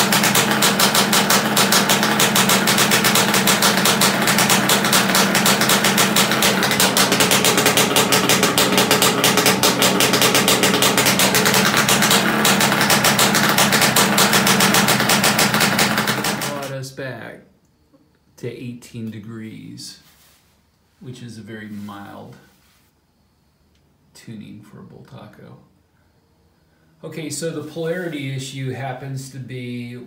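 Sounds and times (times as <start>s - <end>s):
two-stroke engine running: 0.0s - 16.7s.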